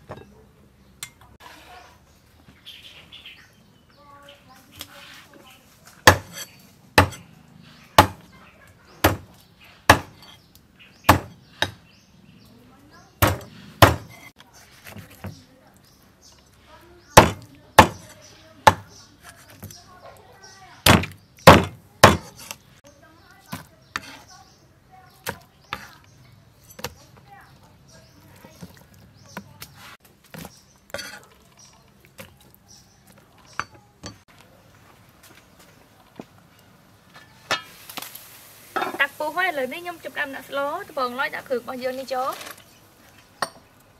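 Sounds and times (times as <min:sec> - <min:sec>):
cleaver chopping on wooden block: 0:06.0 - 0:06.4, 0:07.0 - 0:07.2, 0:08.0 - 0:08.3, 0:09.0 - 0:10.4, 0:11.1 - 0:11.8, 0:13.2 - 0:14.2, 0:17.2 - 0:18.1, 0:18.7 - 0:19.7, 0:20.8 - 0:22.6.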